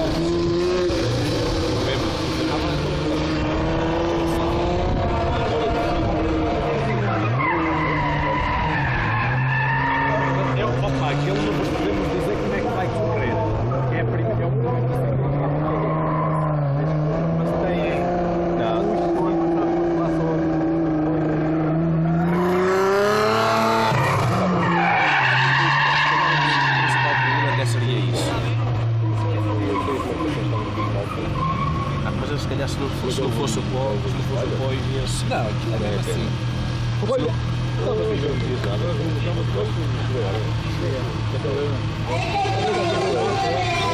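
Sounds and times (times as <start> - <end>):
car engine revving hard: 0.0 - 43.9
tyre squeal: 7.0 - 10.7, 23.8 - 27.8, 29.6 - 32.1
tyres squealing: 23.8 - 27.9.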